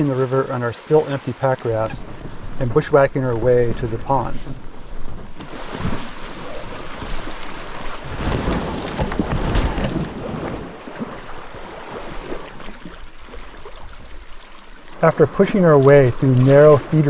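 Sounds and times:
creek water rushing: 0.0 - 4.7, 5.4 - 17.0
wind buffeting microphone: 1.8 - 12.2
branches scraping against raft: 4.0 - 12.8.

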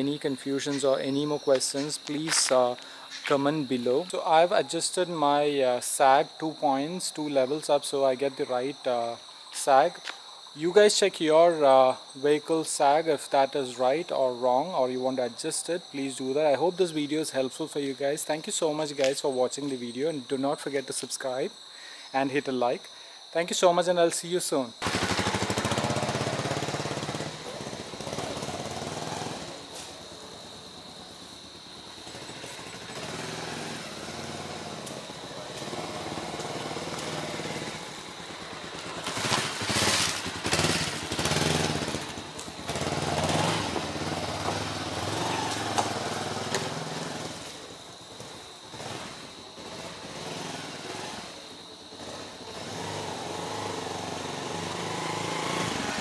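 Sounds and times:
motorcycle engine passing: 24.8 - 56.0.

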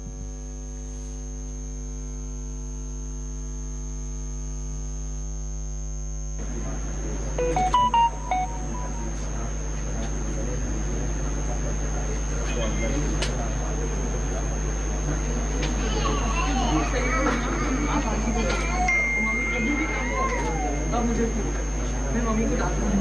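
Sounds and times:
electrical buzz-hum: 0.0 - 23.0
short high tones: 7.4 - 9.6.

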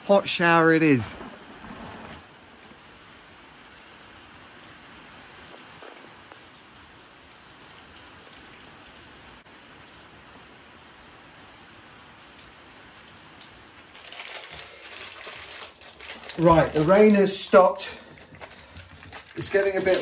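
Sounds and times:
steady rain falling: 0.0 - 20.0
loud rustling: 13.9 - 20.0.

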